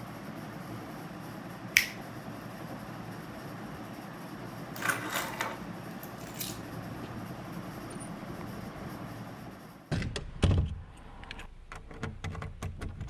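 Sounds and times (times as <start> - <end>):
low room hum: 0.0 - 13.0
light switch click: 1.8 - 2.0.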